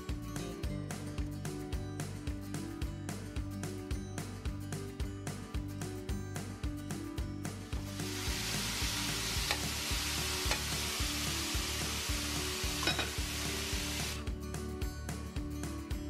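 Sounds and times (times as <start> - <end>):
soft background music: 0.0 - 16.0
chicken sizzling in hot oil: 7.7 - 14.2.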